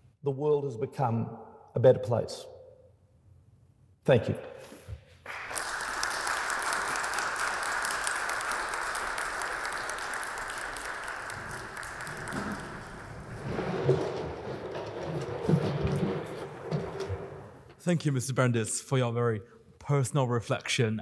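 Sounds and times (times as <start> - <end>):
audience applauding: 5.2 - 17.1.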